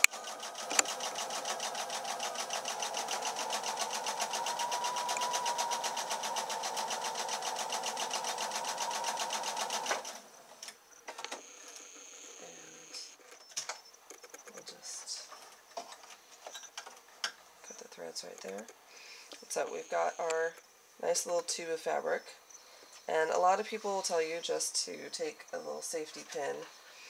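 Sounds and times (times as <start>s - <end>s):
sewing machine running: 0.0s - 10.3s.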